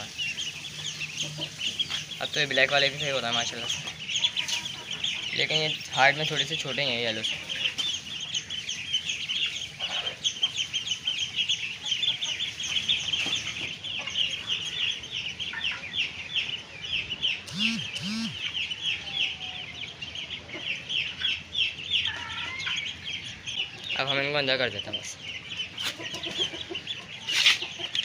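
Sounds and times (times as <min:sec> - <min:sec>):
ducklings peeping: 0:00.0 - 0:28.0
short lower calls: 0:17.5 - 0:18.6.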